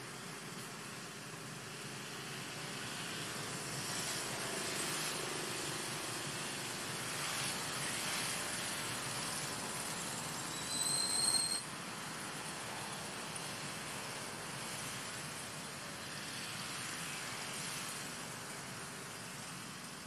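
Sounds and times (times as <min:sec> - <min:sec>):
open air rushing noise: 0:00.0 - 0:20.0
high whistle-like call: 0:10.5 - 0:11.7.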